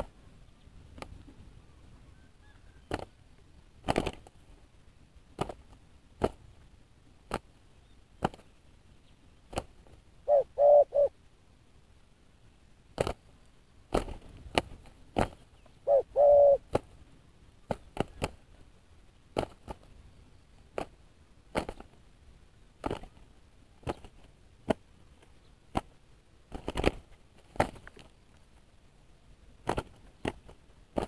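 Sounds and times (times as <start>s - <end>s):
wing slaps and flaps: 2.9s - 3.1s, 3.8s - 4.5s, 5.4s - 6.5s, 8.2s - 8.5s, 9.5s - 10.0s, 13.0s - 13.2s, 13.9s - 15.4s, 19.4s - 19.9s, 21.5s - 22.0s, 22.8s - 23.2s, 23.8s - 24.8s, 25.7s - 28.2s, 29.6s - 31.0s
dove cooing: 10.2s - 11.2s, 15.8s - 16.7s.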